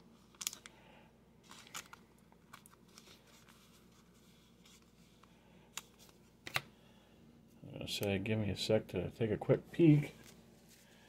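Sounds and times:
plastic sleeve rustling: 1.4 - 6.6.

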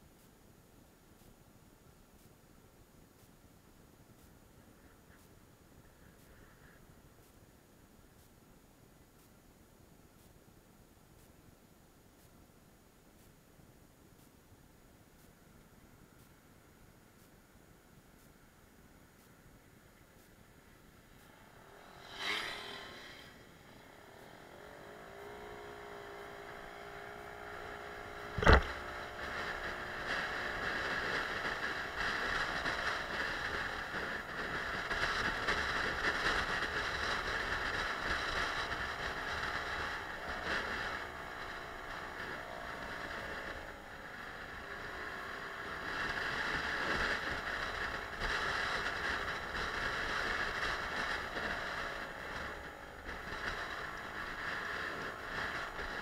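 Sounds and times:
wind and road noise: 0.0 - 56.0
scooter engine running: 21.1 - 56.0.

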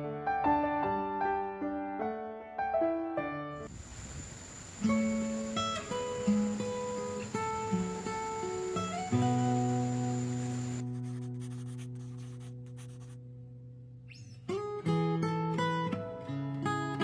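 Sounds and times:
acoustic guitar plucking: 4.8 - 10.8.

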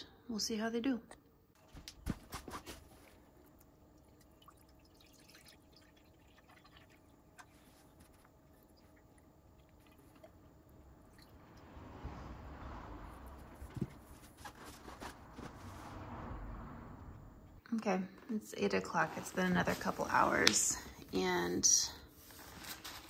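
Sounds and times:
water trickling from watering can: 3.1 - 11.4.

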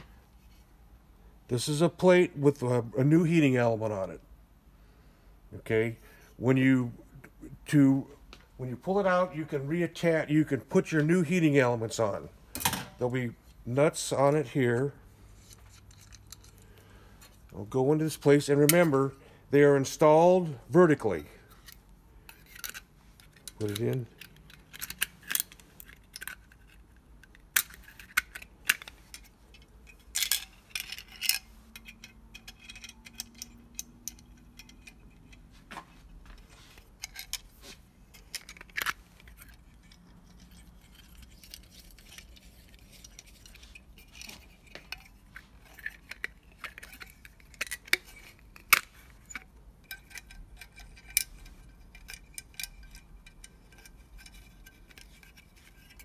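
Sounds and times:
metallic clicks and clinks: 21.1 - 35.5, 36.8 - 56.0.

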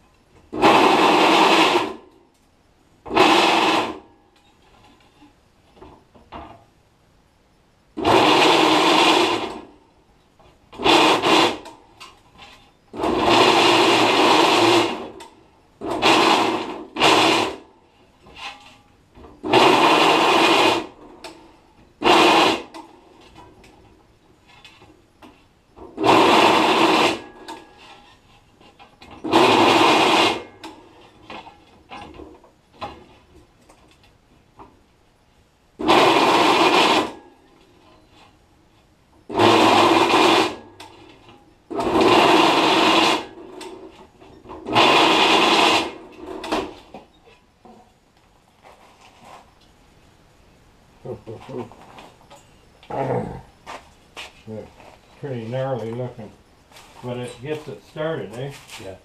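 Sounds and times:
drill press cutting aluminium: 0.6 - 2.0, 3.1 - 4.0, 8.0 - 9.6, 13.0 - 15.2, 15.8 - 17.6, 19.4 - 20.9, 22.0 - 22.7, 25.9 - 28.1, 29.2 - 31.1, 35.8 - 37.3, 39.3 - 41.1, 41.7 - 43.9, 44.6 - 46.8.

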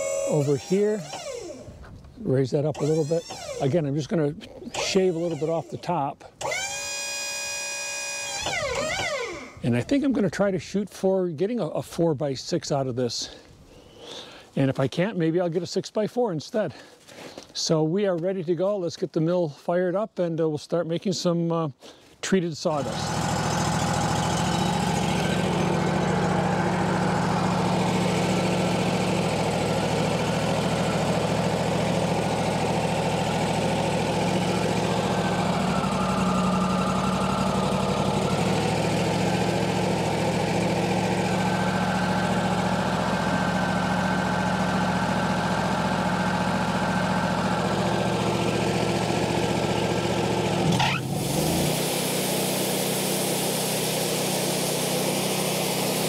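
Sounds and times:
sawmill engine idling: 0.0 - 1.7, 2.6 - 9.6, 22.7 - 56.0.

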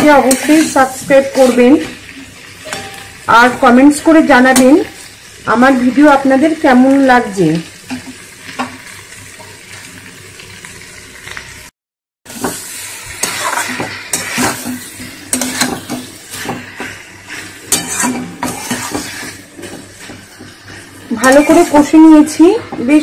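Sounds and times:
spatula scraping metal pan: 0.0 - 2.0, 12.3 - 23.0
light frying sizzle: 0.0 - 11.7, 12.3 - 23.0.

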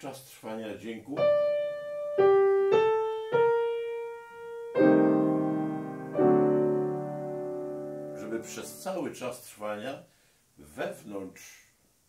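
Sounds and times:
piano notes and chords: 1.2 - 9.0.

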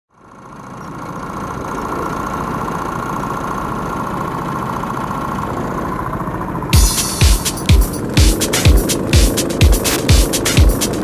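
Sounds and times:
go-kart engines running: 0.1 - 6.8.

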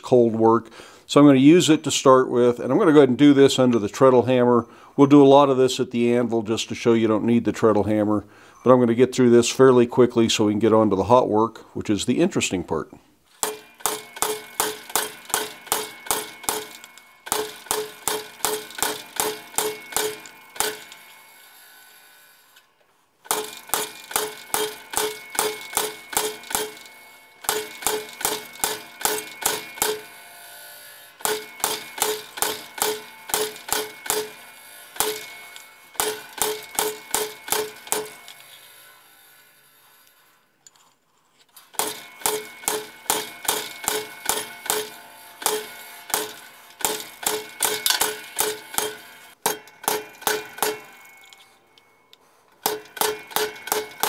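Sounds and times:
ringing hammer blows on metal: 13.4 - 21.4, 23.3 - 39.0, 41.8 - 54.0.

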